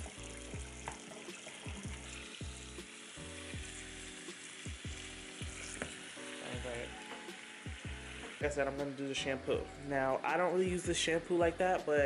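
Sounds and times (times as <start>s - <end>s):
faucet water pouring into plastic bin: 0.0s - 9.2s
background music with steady beat: 0.0s - 12.0s.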